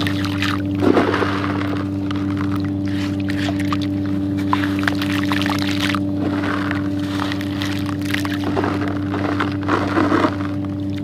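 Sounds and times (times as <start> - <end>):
steady low hum: 0.0 - 11.0
wet chunks crackling and clicking: 0.0 - 11.0
gritty pour and splash into water: 4.5 - 11.0.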